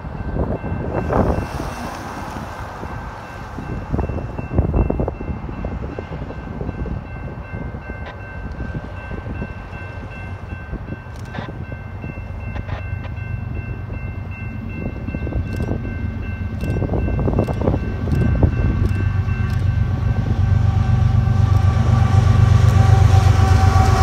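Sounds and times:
distant freight train rumble: 0.0s - 24.0s
wind buffeting microphone: 0.0s - 24.0s.

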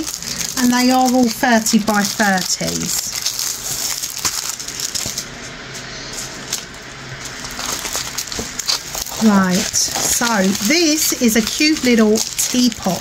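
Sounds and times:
packaging rustling and crinkling: 0.0s - 13.0s.

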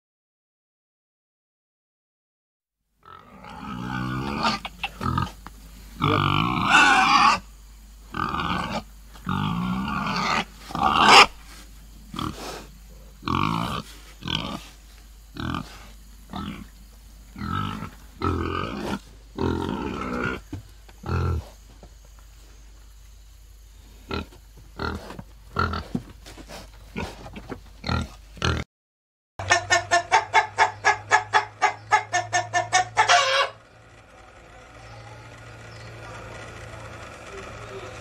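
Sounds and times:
pig grunting: 3.0s - 5.4s, 6.0s - 7.5s, 8.1s - 11.5s, 12.1s - 16.8s, 17.4s - 21.6s, 24.0s - 28.6s.

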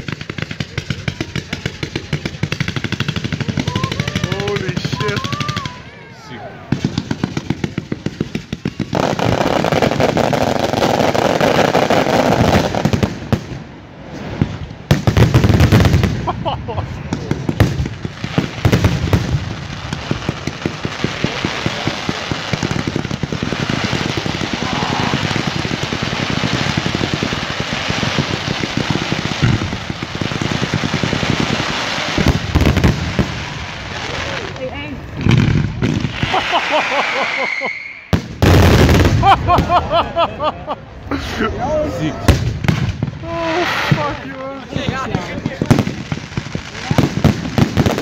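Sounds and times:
firecracker bangs: 0.0s - 5.8s, 14.1s - 34.4s, 35.1s - 40.2s, 42.2s - 48.0s
fireworks crackling: 0.0s - 48.0s.

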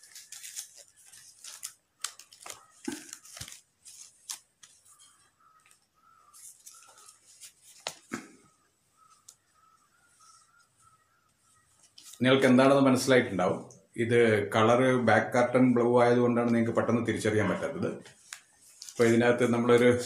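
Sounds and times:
paper rustling and crackling: 0.0s - 8.2s, 11.6s - 12.3s, 18.1s - 20.0s.

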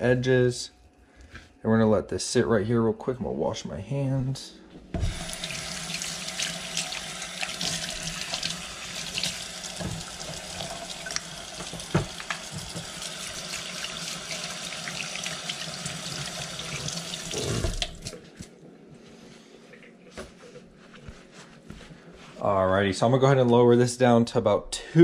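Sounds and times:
faucet running into steel sink: 5.0s - 18.2s
knocks against sink: 11.6s - 12.9s.

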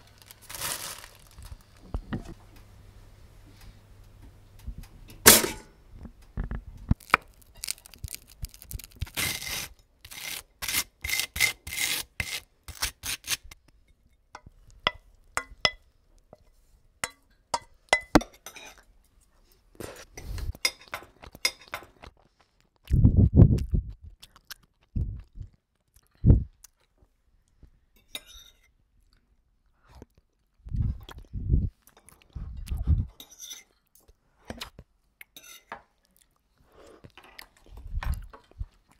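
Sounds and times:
crisp crunches and clicks: 0.0s - 1.8s, 6.9s - 10.3s
dull low thumps: 22.9s - 24.2s, 25.0s - 25.5s, 26.2s - 26.6s, 30.7s - 31.8s.

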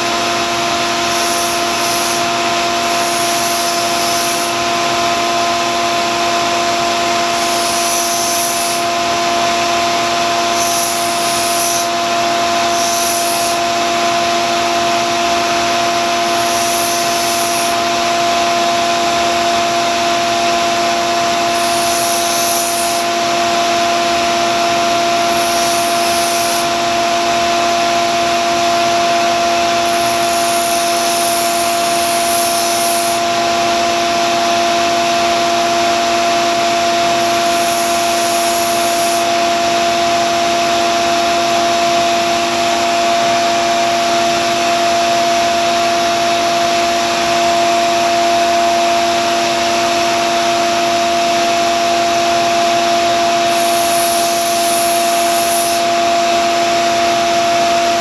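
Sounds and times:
belt grinder and vacuum whine: 0.0s - 58.0s
knife blade grinding on belt: 1.0s - 4.6s, 7.3s - 8.9s, 10.5s - 11.9s, 12.6s - 13.6s, 16.2s - 17.8s, 21.5s - 23.1s, 25.2s - 26.8s, 29.8s - 33.2s, 37.2s - 39.3s, 53.5s - 55.9s.

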